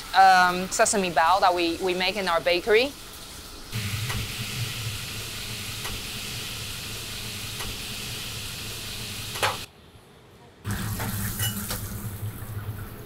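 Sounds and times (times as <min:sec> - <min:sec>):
buns sizzling on griddle: 0:00.0 - 0:09.7
low kitchen hum: 0:02.9 - 0:13.0.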